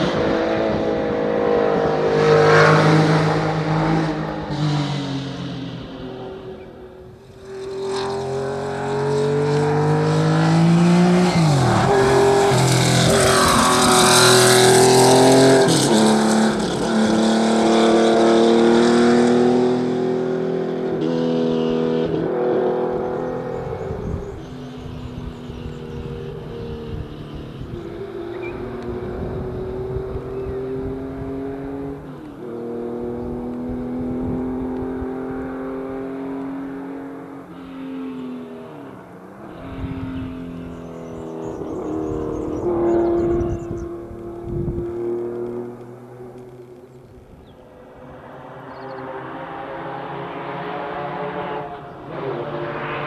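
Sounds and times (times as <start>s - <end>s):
rally car engine revving: 0.0s - 47.0s, 48.1s - 53.0s.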